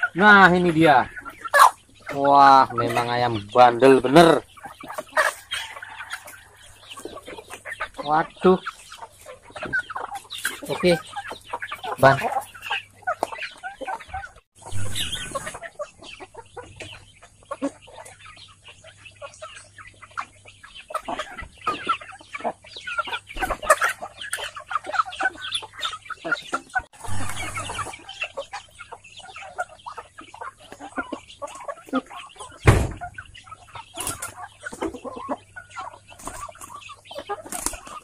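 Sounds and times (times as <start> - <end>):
chickens clucking: 0.0 - 38.0
sharp knock: 32.6 - 33.0.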